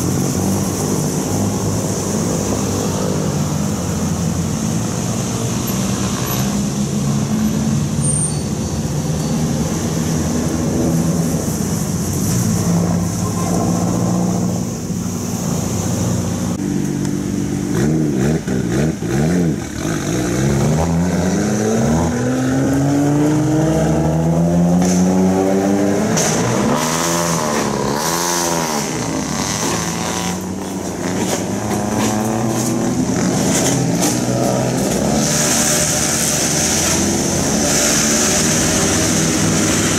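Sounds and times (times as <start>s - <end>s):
car engines pulling away: 0.0s - 39.9s
engine revving: 17.6s - 39.9s.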